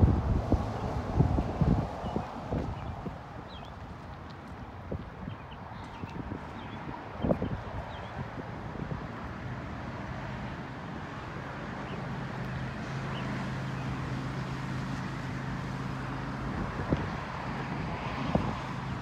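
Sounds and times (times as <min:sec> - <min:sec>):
wind on the microphone: 0:00.0 - 0:09.4, 0:16.4 - 0:19.0
outdoor background noise: 0:00.0 - 0:19.0.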